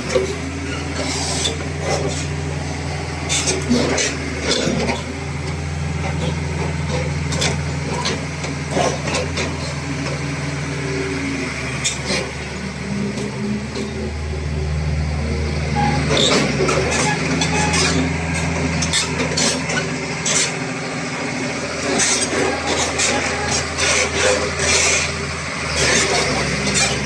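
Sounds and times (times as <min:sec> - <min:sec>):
diesel engine running: 0:00.0 - 0:27.0.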